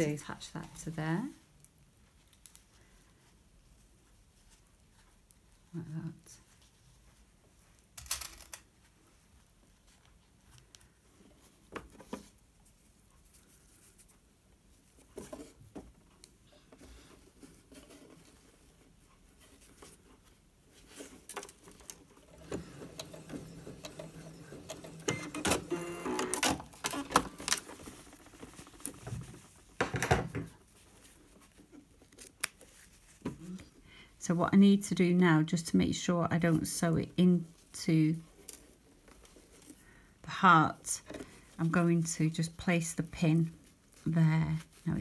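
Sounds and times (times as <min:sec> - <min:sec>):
sewing machine running: 0:22.3 - 0:27.2
fabric rustling: 0:30.4 - 0:33.8.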